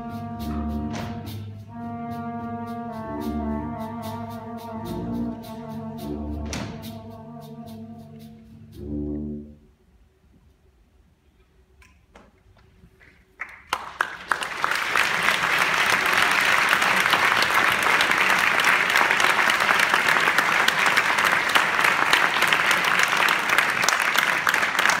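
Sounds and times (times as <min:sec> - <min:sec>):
audience applause: 0:13.4 - 0:25.0.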